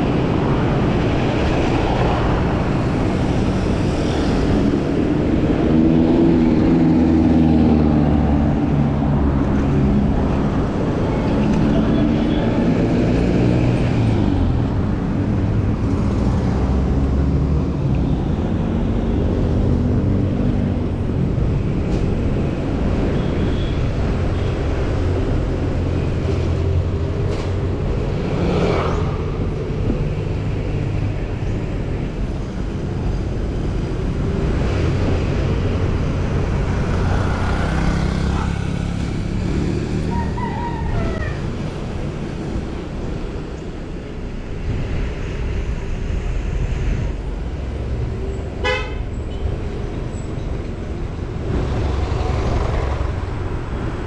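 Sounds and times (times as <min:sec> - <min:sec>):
road traffic rumble: 0:00.0 - 0:54.0
vehicle horns tooting: 0:48.6 - 0:49.1.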